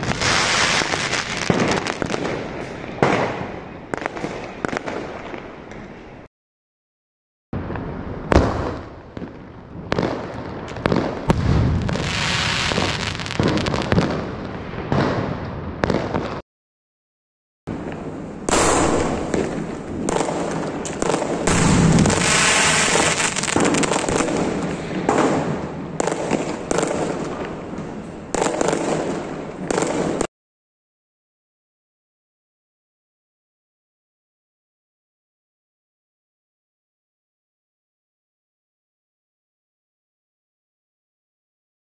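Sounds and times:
firework bang: 0.0s - 2.4s, 7.6s - 16.4s, 18.5s - 27.1s
firework crackling and popping: 0.0s - 5.8s, 7.6s - 16.4s, 17.8s - 30.3s.

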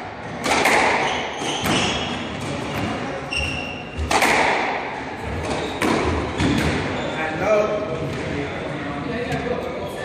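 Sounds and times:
squash ball struck by rackets: 0.4s - 2.9s, 4.0s - 6.9s
shoe squeak on wooden floor: 1.0s - 2.3s, 3.2s - 4.1s, 5.3s - 7.2s.

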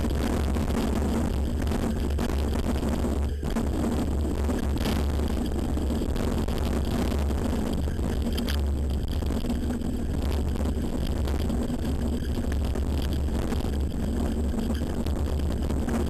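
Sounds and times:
wind on microphone: 0.0s - 16.0s.

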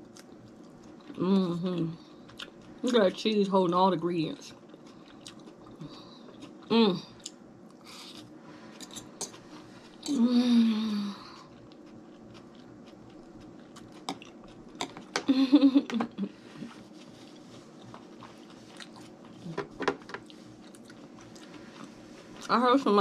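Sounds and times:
close chewing: 2.0s - 3.0s, 4.5s - 10.2s, 11.2s - 15.2s, 16.6s - 19.6s, 20.2s - 23.0s
closed-mouth hums: 10.0s - 11.6s.

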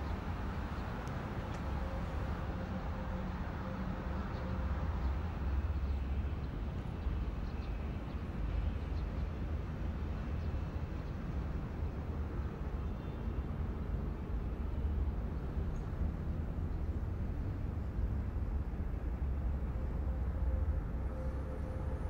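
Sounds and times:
low outdoor rumble: 15.8s - 22.0s.

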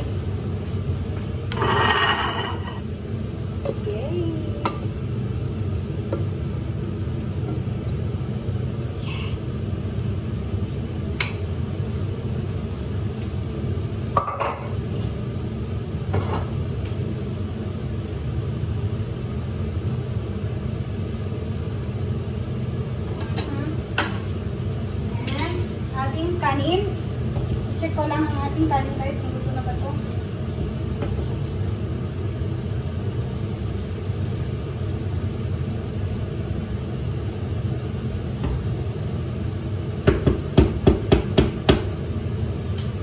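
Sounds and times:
pots and utensils clinking: 1.5s - 2.9s, 25.2s - 25.7s.

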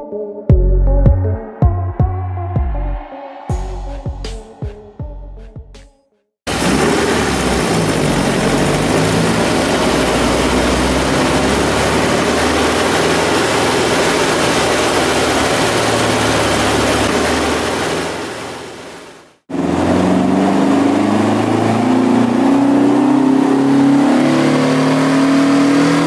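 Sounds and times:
car engine at high revs: 6.5s - 26.0s.

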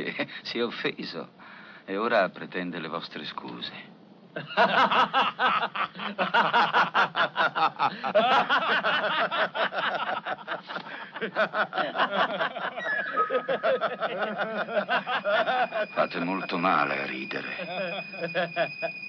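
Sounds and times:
men laughing: 4.4s - 16.6s, 17.3s - 19.0s.

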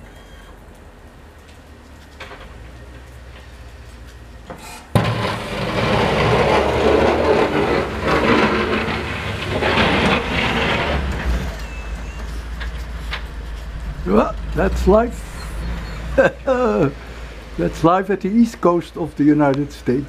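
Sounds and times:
plow blade scraping pavement: 1.4s - 20.0s
truck engine running: 2.6s - 20.0s.

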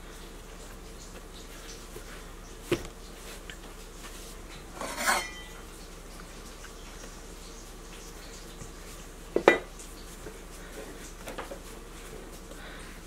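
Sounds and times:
kitchenware clattering: 4.7s - 5.6s, 9.4s - 9.7s.

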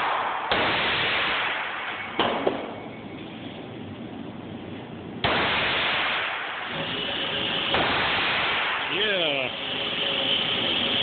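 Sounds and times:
gunshots echoing indoors: 0.0s - 2.9s, 5.2s - 8.9s.

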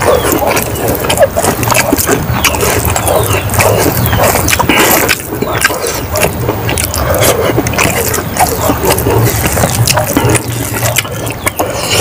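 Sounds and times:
wet chewing and lip-smacking: 0.0s - 12.0s.

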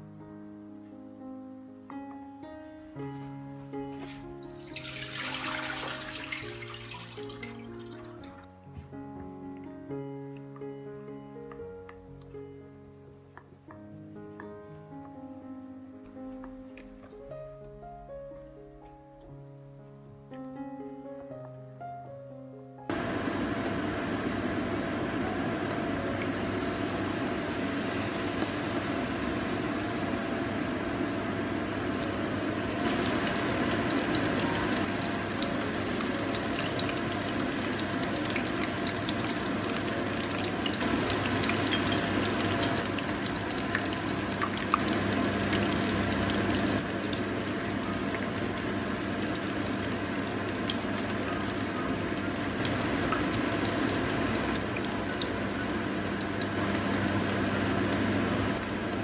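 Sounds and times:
food deep-frying in hot oil: 4.5s - 8.3s, 26.2s - 59.0s.

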